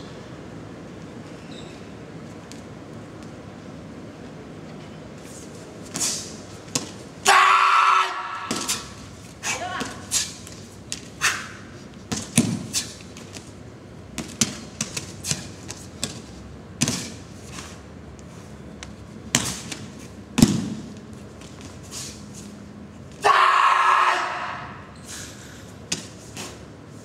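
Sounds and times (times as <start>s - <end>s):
staff swishing through air: 5.2s - 6.9s, 8.5s - 13.3s, 25.1s - 27.0s
thuds on floor mats: 19.3s - 21.6s.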